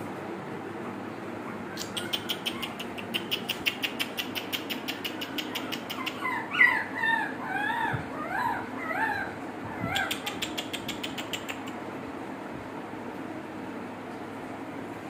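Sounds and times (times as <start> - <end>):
puppies yipping: 1.5 - 11.7
rapid sharp clicks: 1.8 - 6.3, 10.0 - 11.8.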